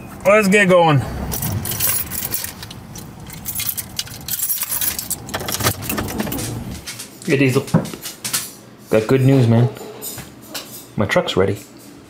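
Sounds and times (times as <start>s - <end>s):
small metal pieces jangling: 1.3s - 6.9s.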